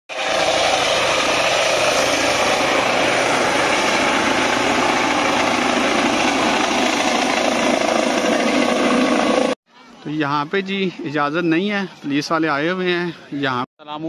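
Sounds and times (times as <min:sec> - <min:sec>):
helicopter turbine and rotor: 0:00.1 - 0:09.6.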